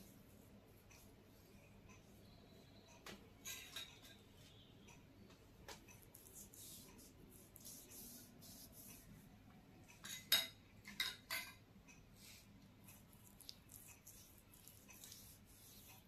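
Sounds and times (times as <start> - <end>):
hands rubbing skin: 5.7 - 9.1, 12.9 - 16.0.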